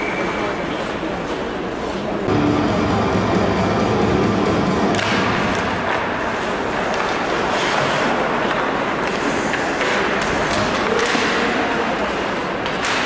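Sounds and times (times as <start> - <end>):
arena music over loudspeakers: 2.3 - 5.8
hockey sticks and puck knocking: 4.9 - 13.0
skates scraping ice: 5.0 - 13.0.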